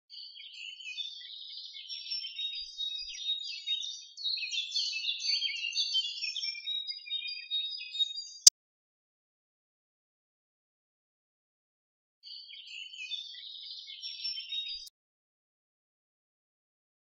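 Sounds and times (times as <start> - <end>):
songbirds chirping and trilling: 0.1 - 8.5, 12.2 - 14.9.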